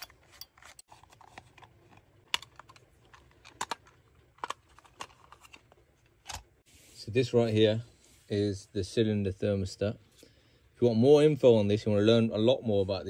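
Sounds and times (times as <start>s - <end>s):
plastic parts clicking: 0.0s - 6.5s.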